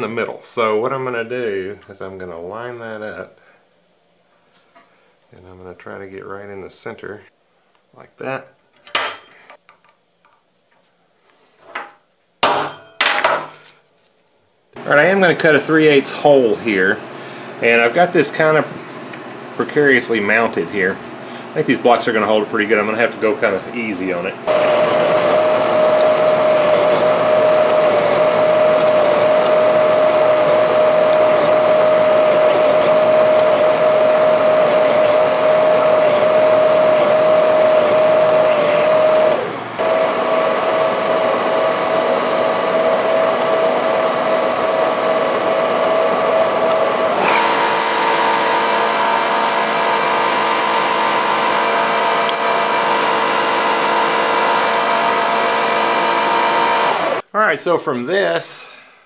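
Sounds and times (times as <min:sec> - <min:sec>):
milling machine spindle whine: 0:21.5 - 0:57.2
cutter boring through metal plate: 0:24.5 - 0:57.2.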